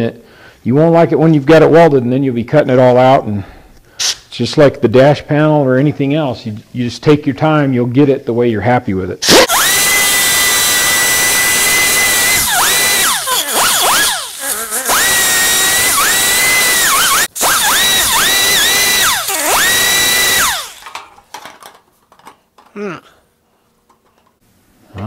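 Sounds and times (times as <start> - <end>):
pneumatic grinder whining on steel: 9.2 - 21.6.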